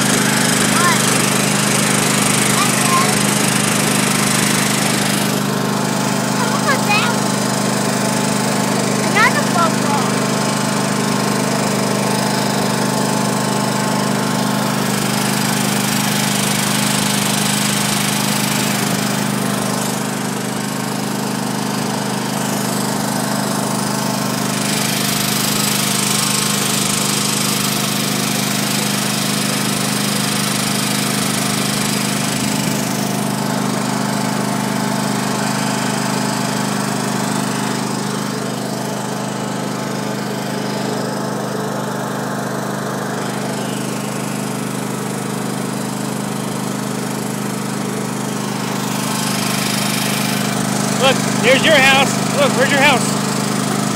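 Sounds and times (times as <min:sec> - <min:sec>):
vehicle engine running: 0:00.0 - 0:25.4, 0:47.2 - 0:53.9.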